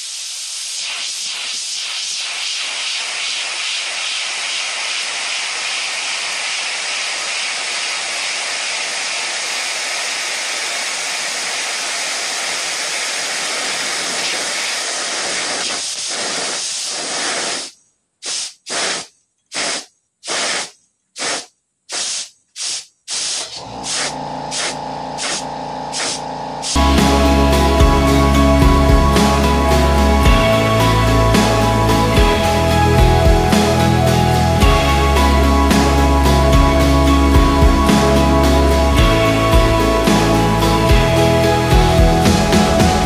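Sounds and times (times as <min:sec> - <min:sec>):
air jet hissing: 0:00.0 - 0:43.0
music: 0:26.8 - 0:43.0.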